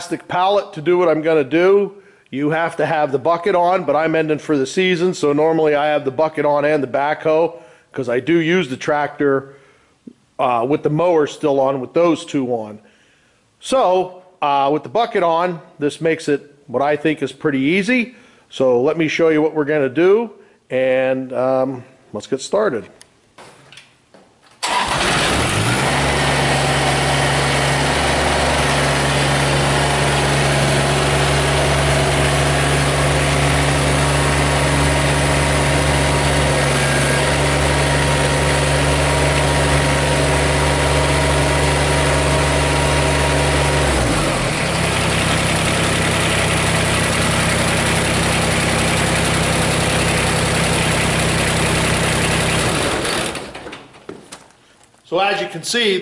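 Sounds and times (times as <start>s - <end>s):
tractor diesel engine running: 24.6s - 53.9s.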